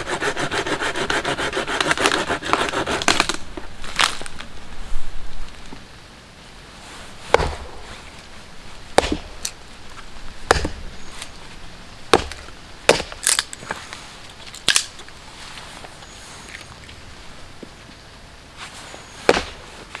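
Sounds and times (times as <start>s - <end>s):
hatchet chopping wood: 7.3s - 7.8s, 9.0s - 9.6s, 10.5s - 10.9s, 12.1s - 13.5s, 19.3s - 19.6s.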